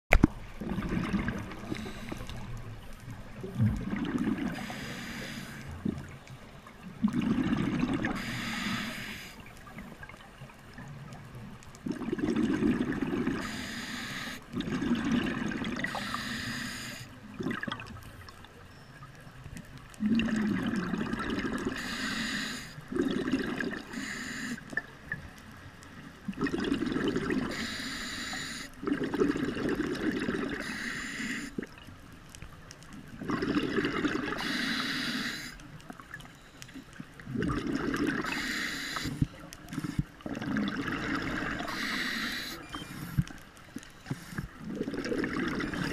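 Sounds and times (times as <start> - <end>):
gurgling exhaled bubbles: 0.6 - 5.2, 6.8 - 9.2, 11.8 - 13.6, 14.5 - 16.1, 17.3 - 18.0, 20.0 - 21.9, 22.9 - 23.9, 26.3 - 27.7, 28.8 - 30.7, 33.0 - 34.6, 37.2 - 43.2, 44.4 - 45.9
regulator hissing inhale: 1.6 - 2.5, 4.6 - 5.8, 8.2 - 9.5, 13.4 - 14.5, 15.9 - 17.1, 21.8 - 22.9, 23.9 - 24.7, 27.5 - 28.8, 30.6 - 31.6, 34.4 - 35.6, 38.2 - 40.0, 41.6 - 43.2, 43.8 - 44.6.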